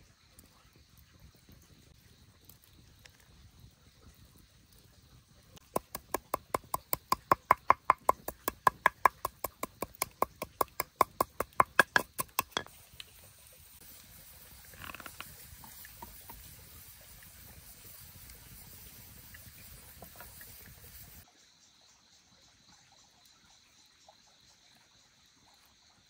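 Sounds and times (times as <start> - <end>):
fast sharp knocks: 5.6 - 12.7.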